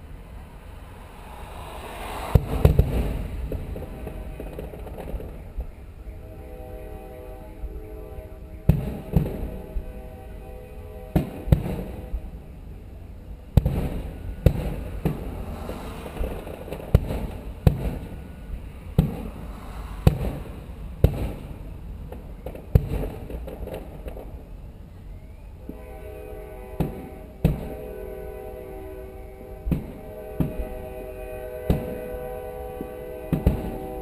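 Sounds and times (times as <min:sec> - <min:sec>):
fireworks booming: 0:01.0 - 0:05.8, 0:08.7 - 0:09.6, 0:11.1 - 0:12.2, 0:13.6 - 0:24.4, 0:26.8 - 0:27.8, 0:29.7 - 0:30.7, 0:31.6 - 0:32.0, 0:33.3 - 0:33.8
steady horn: 0:06.2 - 0:11.4, 0:25.7 - 0:34.0.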